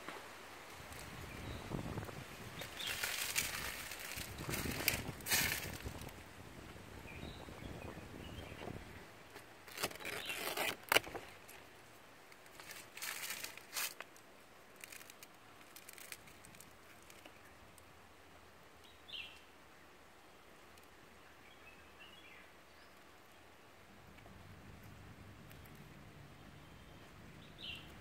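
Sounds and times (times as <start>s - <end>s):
rustling and scraping: 0.0s - 6.2s, 8.6s - 11.6s, 12.3s - 14.2s, 14.8s - 17.4s
bird chirp: 7.0s - 8.7s, 18.8s - 19.5s, 25.5s - 28.0s.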